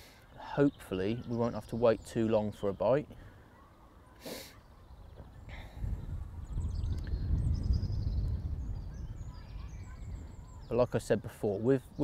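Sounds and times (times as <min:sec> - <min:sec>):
small bird chirping: 0:03.7 - 0:11.1
wind buffeting microphone: 0:04.8 - 0:12.0.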